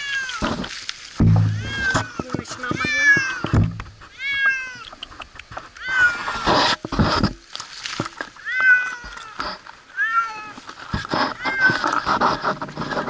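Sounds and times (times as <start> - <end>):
cat meowing: 1.5 - 3.5, 4.1 - 5.0, 8.4 - 9.4, 10.0 - 10.6.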